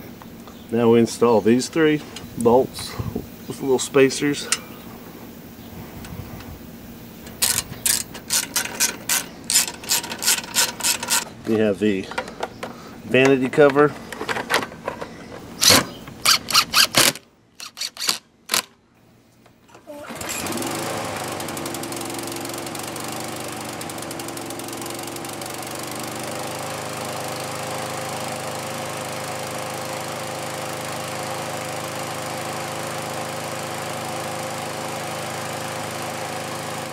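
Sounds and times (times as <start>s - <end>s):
lawn mower engine running: 0.0s - 18.6s, 19.8s - 36.9s
sharp clicks and knocks: 7.2s - 18.8s.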